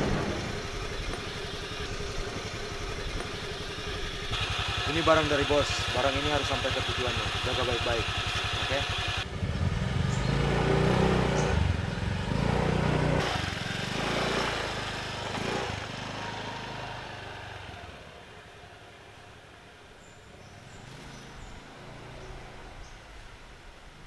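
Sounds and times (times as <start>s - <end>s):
motorcycle engine revving: 0.0s - 23.1s.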